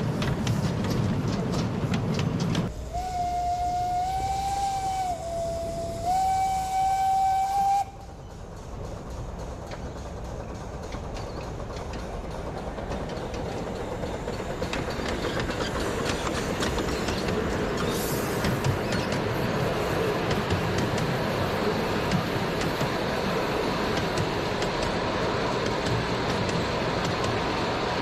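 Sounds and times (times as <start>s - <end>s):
miniature train running on track: 0.0s - 28.0s
steam whistle: 2.9s - 8.1s.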